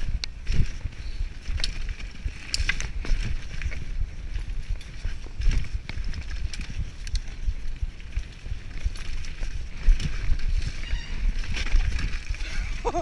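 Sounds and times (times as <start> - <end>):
bike rattling clicks: 0.0 - 13.0
wind buffeting microphone: 0.0 - 13.0.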